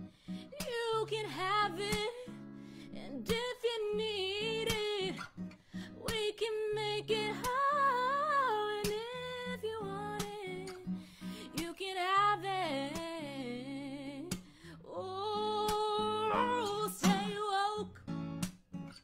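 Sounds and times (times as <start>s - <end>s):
woman singing with vibrato: 0.5s - 2.3s, 3.0s - 5.2s, 6.0s - 10.8s, 11.4s - 17.9s
acoustic guitar strummed: 16.0s - 19.0s.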